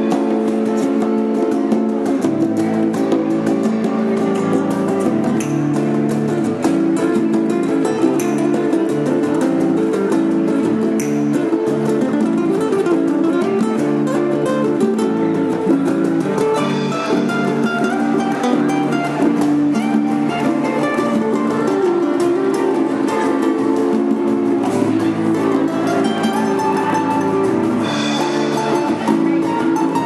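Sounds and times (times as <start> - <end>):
bongos and congas: 0.0 - 30.0
nylon-string guitar playing: 0.0 - 30.0.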